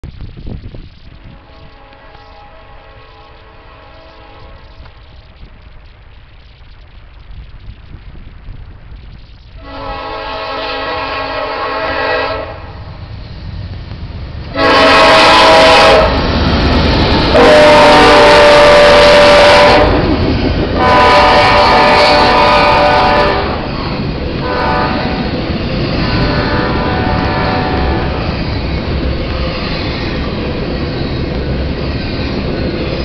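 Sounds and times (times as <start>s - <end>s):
train wheels rumbling on rails: 0.0s - 33.0s
locomotive air horn blasts: 1.2s - 4.6s, 9.6s - 12.9s, 14.5s - 16.3s, 17.3s - 20.1s, 20.8s - 23.7s, 24.4s - 25.4s, 26.0s - 28.2s.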